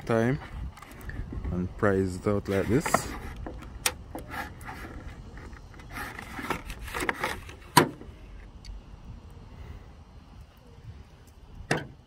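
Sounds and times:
plastic tool scraping plastic: 2.4 - 3.6, 4.2 - 7.8.

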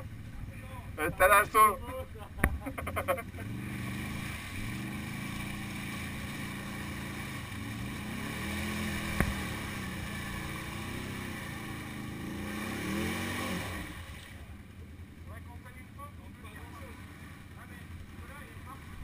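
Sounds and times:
quad engine revving: 2.4 - 14.3.

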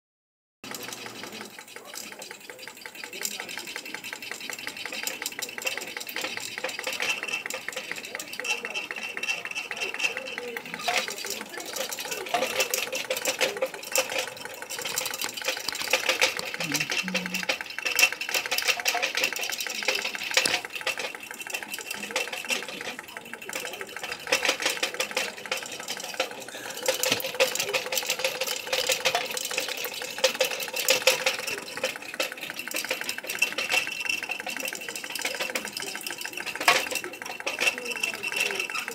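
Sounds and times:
engine mechanical clatter: 0.6 - 38.9.

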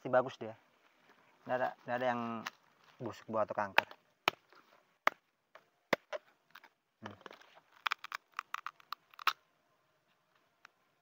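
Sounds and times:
crisp cracks of pod splitting: 5.9 - 9.4.

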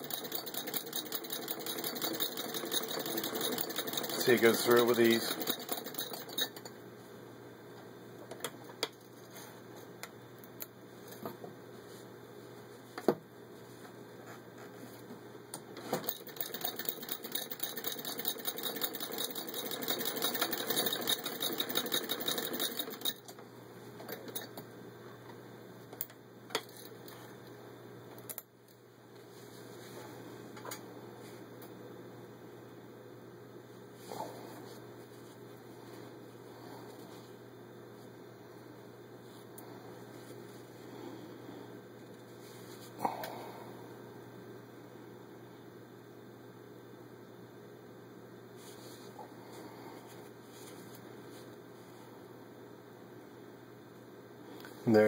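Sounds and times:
sewing machine clatter: 0.0 - 6.7, 16.0 - 23.3.

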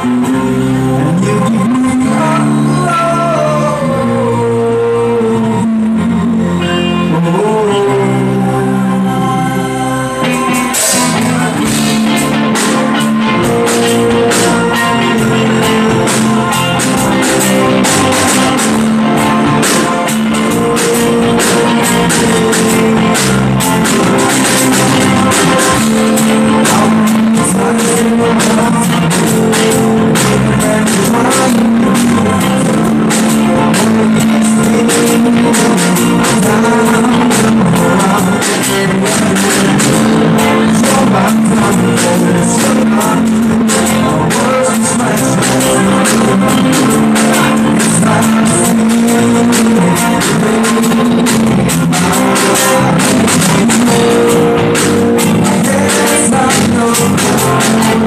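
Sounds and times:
drum kit: 0.0 - 58.0
electric guitars: 0.0 - 58.0.

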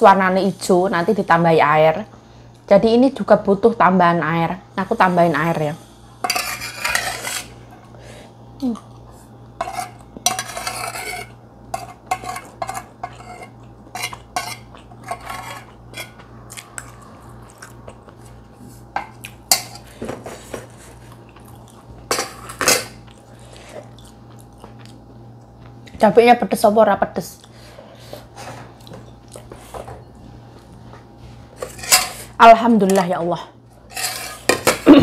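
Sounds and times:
low steady hum: 0.0 - 35.0
metal spoon scraping a plate: 6.2 - 7.6, 9.6 - 16.2, 31.6 - 32.3, 33.9 - 34.8.

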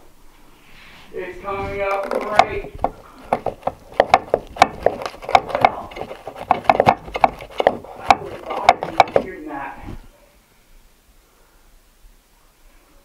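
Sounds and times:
cable tapping and scraping on wood: 1.6 - 9.4.

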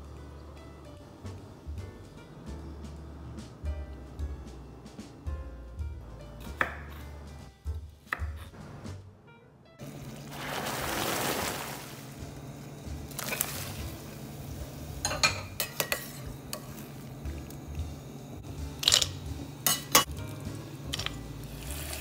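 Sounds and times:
water boiling in a pot: 9.8 - 18.4, 19.5 - 22.0
metal tongs clinking against pot: 15.0 - 16.8, 18.8 - 20.2, 20.9 - 21.2.

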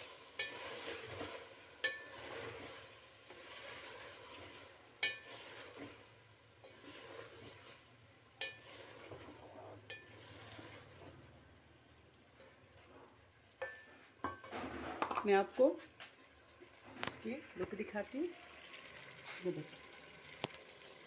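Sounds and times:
food sizzling in a pot: 0.0 - 21.0
utensil clinking against pot: 1.8 - 2.2, 5.0 - 5.4, 8.4 - 8.8.

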